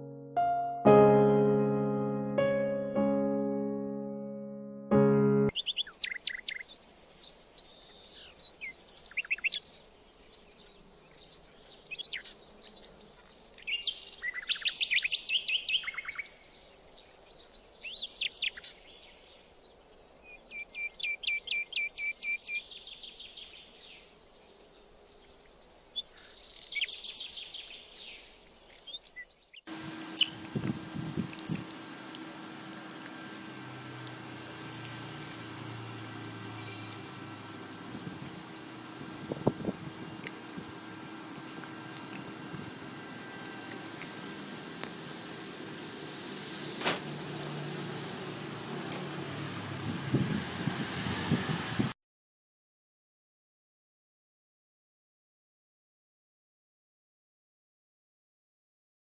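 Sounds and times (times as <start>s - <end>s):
steady hum: 29.7s - 48.2s
otters chirping squeaks: 30.0s - 31.8s
loud sharp otter squeaks: 30.2s - 30.8s.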